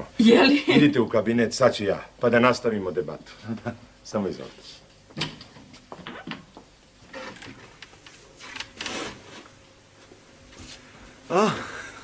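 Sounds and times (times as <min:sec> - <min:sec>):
rustling of people moving: 0:03.1 - 0:11.2.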